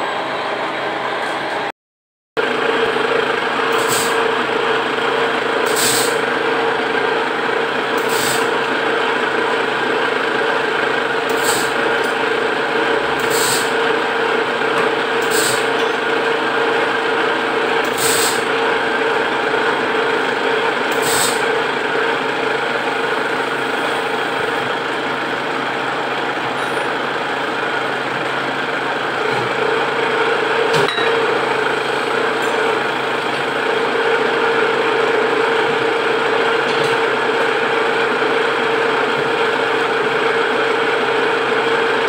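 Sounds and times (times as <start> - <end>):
metal lathe humming: 2.4 - 42.0.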